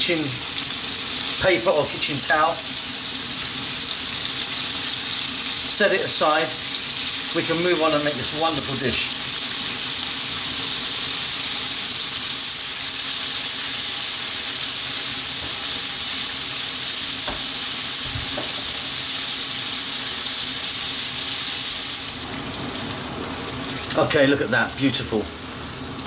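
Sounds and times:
fish frying in hot oil: 0.0s - 26.0s.

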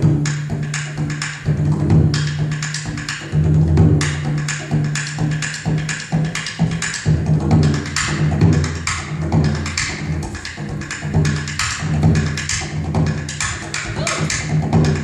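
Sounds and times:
bodhran drum beat: 0.0s - 15.0s.

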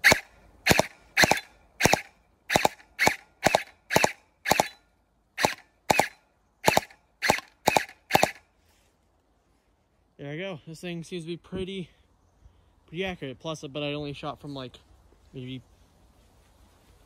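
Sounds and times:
gel blaster firing sharp pops: 0.0s - 4.8s, 5.4s - 8.4s.

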